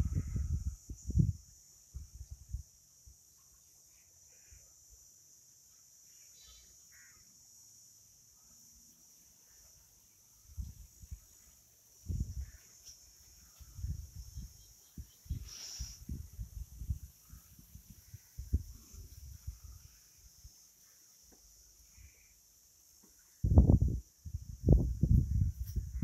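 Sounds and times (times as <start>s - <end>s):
faint bird chirps: 0.0s - 23.5s
high-pitched insect drone: 3.9s - 9.8s.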